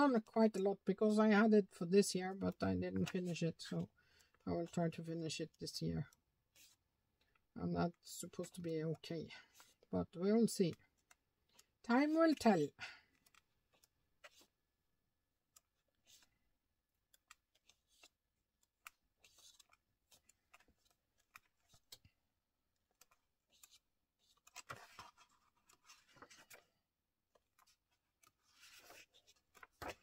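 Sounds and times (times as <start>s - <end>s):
book pages turning: 6.4s - 7.4s, 9.5s - 9.8s, 13.1s - 14.7s, 15.5s - 30.0s
paper rustling: 13.2s - 14.6s, 17.2s - 22.1s, 22.9s - 30.0s.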